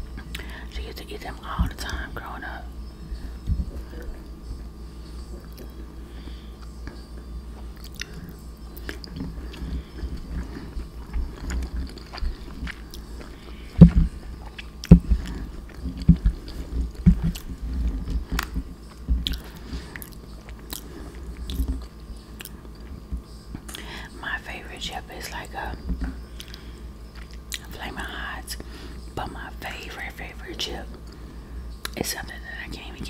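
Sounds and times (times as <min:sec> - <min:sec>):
close chewing mouth sounds: 0:07.6 - 0:23.9, 0:25.4 - 0:27.8.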